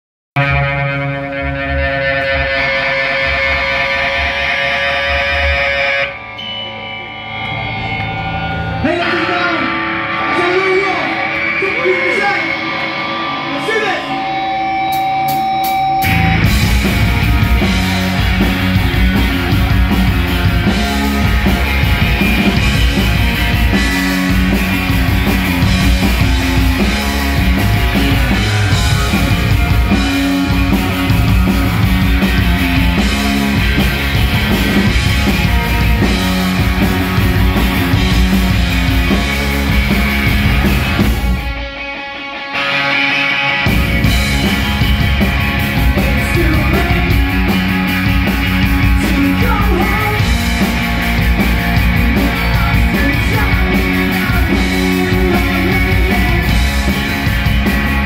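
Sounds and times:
bass guitar: 0:00.4 - 0:58.0
distorted electric guitar: 0:00.4 - 0:58.0
drum kit: 0:13.8 - 0:42.0, 0:42.6 - 0:58.0.

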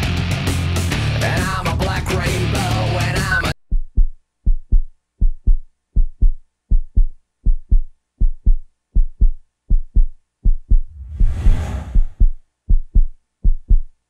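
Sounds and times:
heartbeat thumps: 0:03.6 - 0:13.9
rushing noise: 0:10.9 - 0:12.2.

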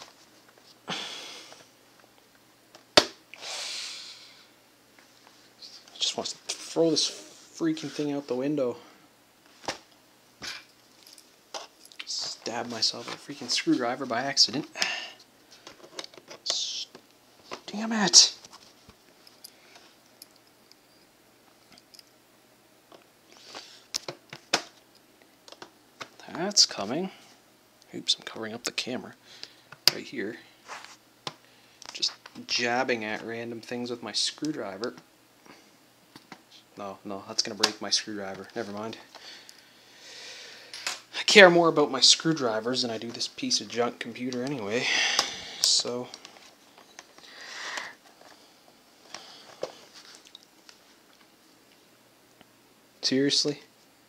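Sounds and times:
soft hiss: 0:00.0 - 0:54.0
short hissing noises: 0:03.3 - 0:04.5.

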